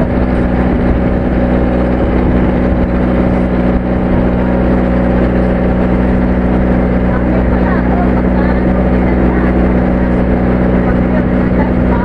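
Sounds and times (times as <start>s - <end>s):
boat engine droning: 0.0s - 12.0s
churning water wash: 0.0s - 12.0s.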